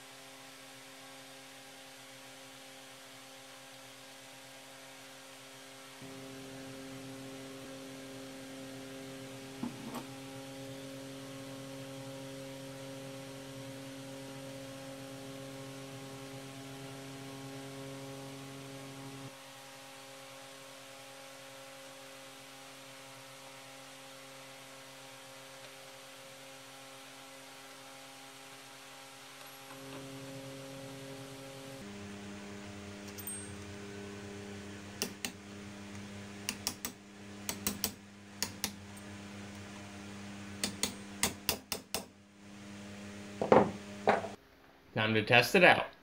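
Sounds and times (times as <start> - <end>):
steady low hum: 29.6 - 44.4
hammer tapping metal punch: 40.6 - 42.1.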